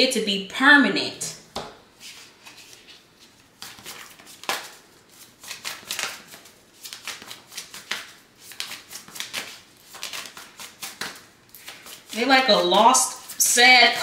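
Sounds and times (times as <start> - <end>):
cards being shuffled: 2.0 - 12.3.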